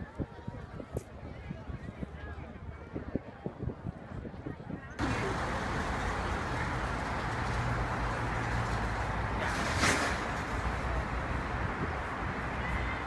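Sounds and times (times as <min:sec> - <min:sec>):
city street traffic hum: 0:05.0 - 0:13.0.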